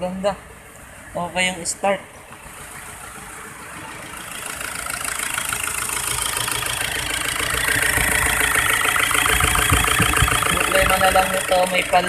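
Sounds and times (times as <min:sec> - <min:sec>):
diesel engine idling with clatter: 0:00.0 - 0:12.0.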